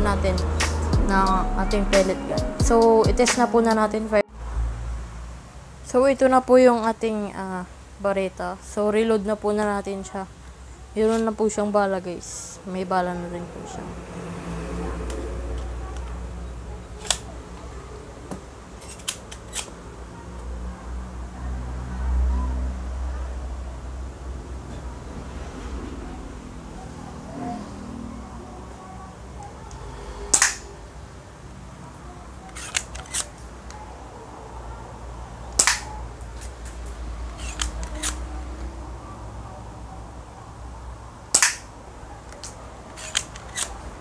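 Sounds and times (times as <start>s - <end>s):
toy pistol slide clicks: 32.5s - 33.3s, 35.6s - 35.9s, 37.3s - 38.2s, 41.3s - 41.7s, 42.3s - 43.8s
light pistol clicks: 35.6s - 35.9s, 41.4s - 41.7s
toy pistol firing snap: 35.6s - 35.9s, 41.3s - 41.7s.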